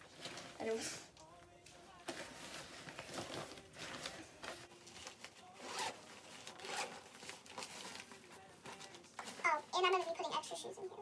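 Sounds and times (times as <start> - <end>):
zipper being pulled: 5.6 - 8.0.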